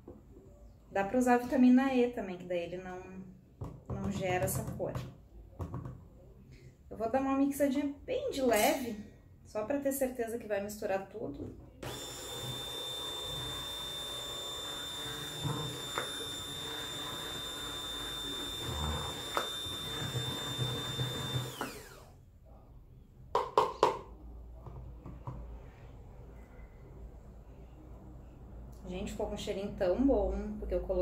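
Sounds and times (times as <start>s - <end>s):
stick blender motor whine: 11.8s - 22.1s.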